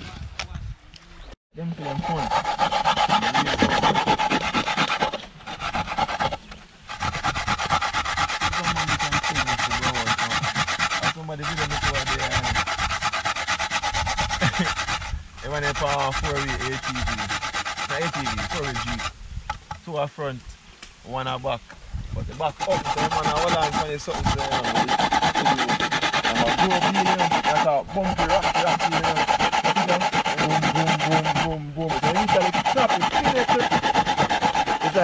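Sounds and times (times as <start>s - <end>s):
coconut grated on metal grater: 1.8s - 19.2s, 22.3s - 35.0s.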